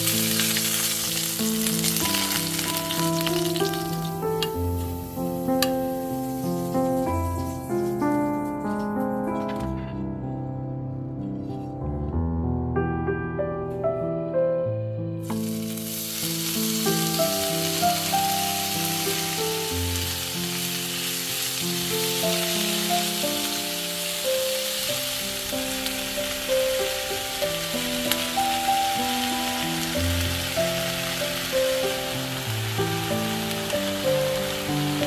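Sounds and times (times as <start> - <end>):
onions sizzling in hot oil: 0.0 - 8.2, 15.2 - 35.0
piano music: 0.0 - 35.0.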